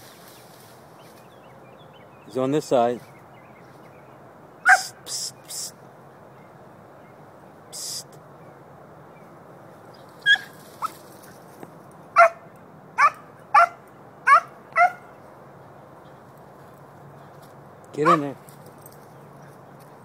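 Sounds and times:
dog yelping: 0:04.6 - 0:05.0, 0:10.2 - 0:11.0, 0:12.2 - 0:12.4, 0:13.0 - 0:15.1, 0:18.0 - 0:18.3.

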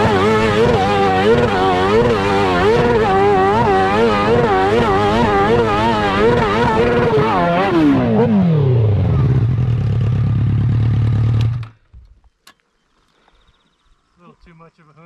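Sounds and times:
motorcycle engine revving: 0:00.0 - 0:11.8.

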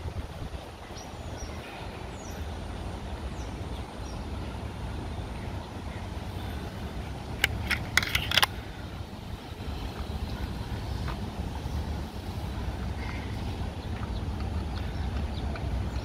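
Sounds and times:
road traffic rumble: 0:00.0 - 0:16.0
sharp clicks: 0:07.4 - 0:08.6.

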